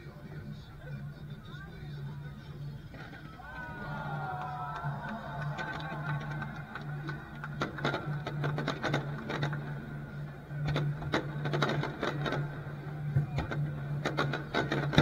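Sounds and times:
low hum: 0:00.0 - 0:15.0
fireworks crackling pops: 0:05.6 - 0:09.7, 0:10.6 - 0:12.6, 0:13.3 - 0:15.0.

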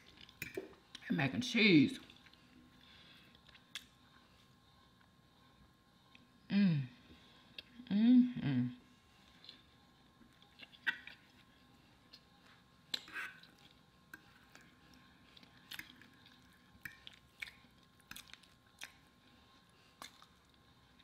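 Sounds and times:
person chewing food: 0:00.0 - 0:01.0, 0:02.0 - 0:06.4, 0:09.2 - 0:21.0.

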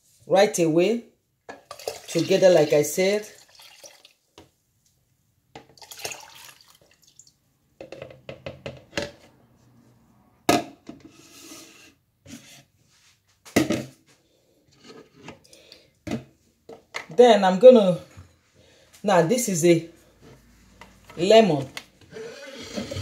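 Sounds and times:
plastic cups clattering on countertop: 0:01.5 - 0:02.4, 0:05.6 - 0:06.9, 0:07.8 - 0:09.2
juice pouring into plastic pitcher: 0:01.6 - 0:04.2, 0:05.8 - 0:07.4.

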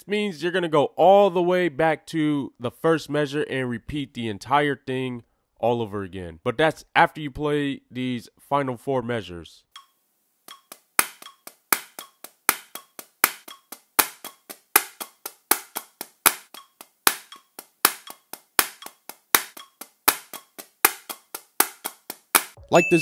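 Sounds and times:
drumsticks striking practice pad: 0:10.5 - 0:22.6.

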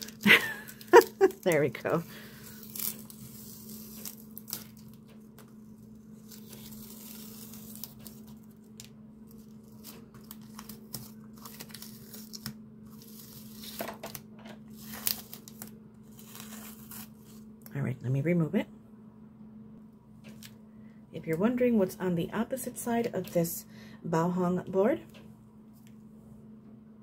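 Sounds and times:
masking tape peeling off paper: 0:00.0 - 0:01.8, 0:02.4 - 0:08.7, 0:09.3 - 0:17.4.

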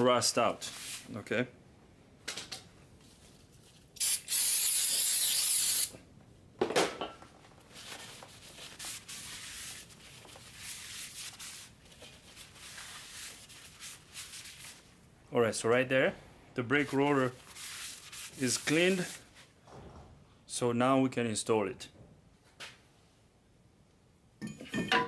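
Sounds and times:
aerosol spray hissing: 0:04.0 - 0:05.9.

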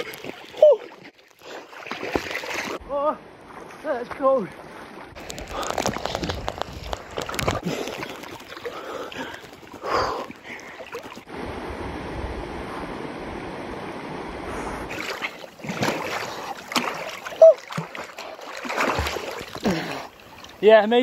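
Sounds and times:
person wading and splashing: 0:00.0 - 0:02.8, 0:03.4 - 0:11.3, 0:14.9 - 0:20.7.

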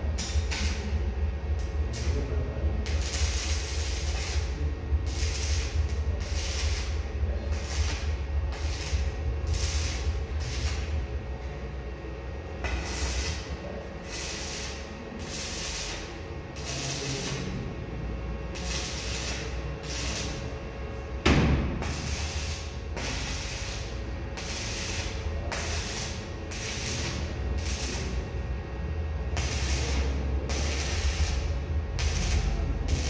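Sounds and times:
welding arc crackling hiss: 0:00.0 - 0:11.5, 0:12.5 - 0:17.7, 0:18.4 - 0:20.6, 0:21.2 - 0:28.6, 0:29.2 - 0:33.0
low hum: 0:00.0 - 0:33.0
loud knock: 0:21.2 - 0:21.9.

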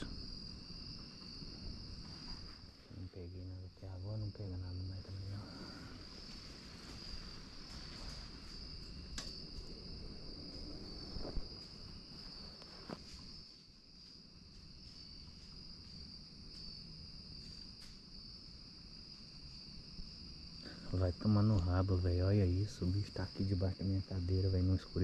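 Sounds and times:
night insects chorus: 0:00.0 - 0:25.0
faint clicks: 0:07.7 - 0:09.8.

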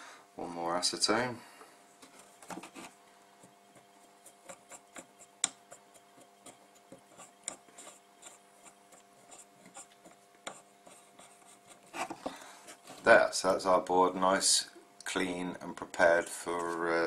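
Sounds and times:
faint steady hum: 0:00.0 - 0:17.0
cotton bud scrubbing circuit board: 0:02.6 - 0:12.2.

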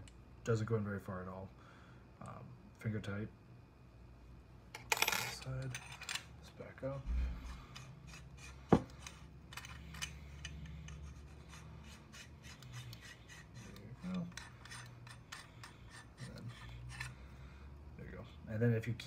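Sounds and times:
metal threads scraping: 0:07.0 - 0:17.6.

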